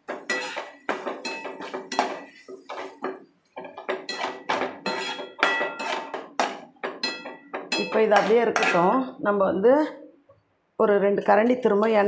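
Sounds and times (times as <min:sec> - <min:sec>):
metal spatula scraping a pan: 0:00.0 - 0:09.0.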